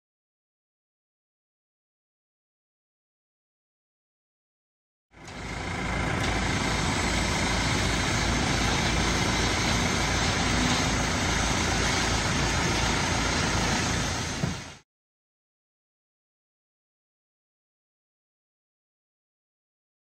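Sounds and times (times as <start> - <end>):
tractor diesel engine running: 5.2 - 14.8.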